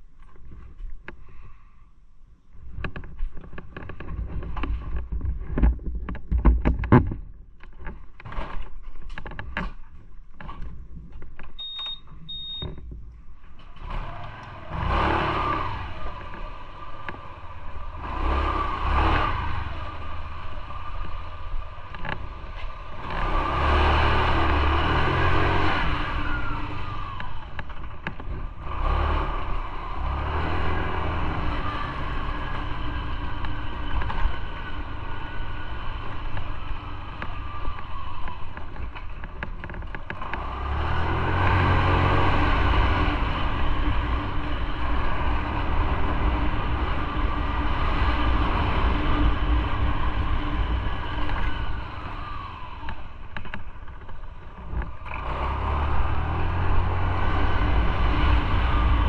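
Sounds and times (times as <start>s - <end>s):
road noise: 0.0s - 59.0s
motorcycle engine running: 15.4s - 59.0s.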